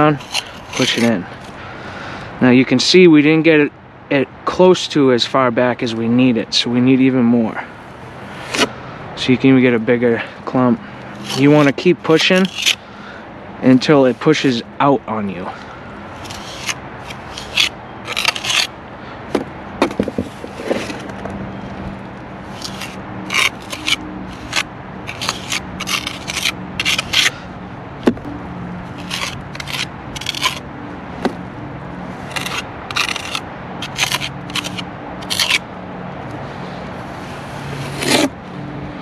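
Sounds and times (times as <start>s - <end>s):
trowel scraping mortar: 0.0s - 1.6s, 11.2s - 12.8s, 16.2s - 18.7s, 20.2s - 21.2s, 22.5s - 27.4s, 28.9s - 30.7s, 32.2s - 35.7s, 37.6s - 38.4s.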